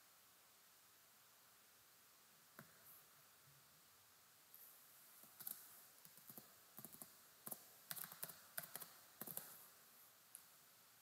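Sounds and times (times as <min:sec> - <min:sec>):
typing on a computer keyboard: 0:05.3 - 0:09.6.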